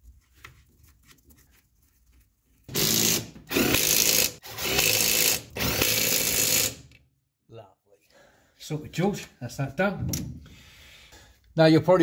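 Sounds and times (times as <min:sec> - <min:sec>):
power driver spinning nuts: 0:02.7 - 0:06.8.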